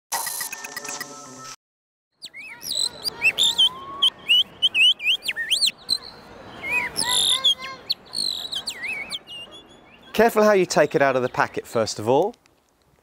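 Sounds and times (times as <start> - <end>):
whistled bird-song imitation: 2.2 - 10.2.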